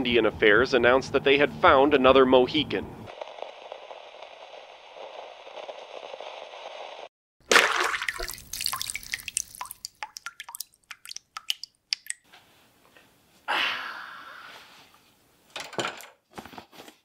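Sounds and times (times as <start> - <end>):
liquid splashing: 7.4 - 12.2
liquid dripping: 7.5 - 12.2.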